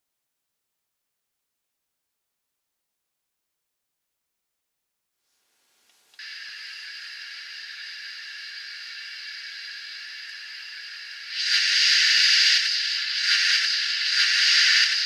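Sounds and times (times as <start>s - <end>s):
model locomotive steam hiss: 6.2s - 15.0s.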